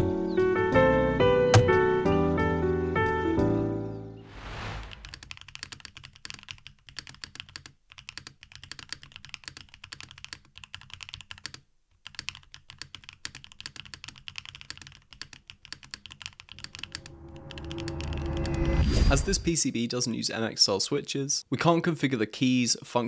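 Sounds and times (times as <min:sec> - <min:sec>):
keyboard typing clacks: 0:05.0 - 0:18.6.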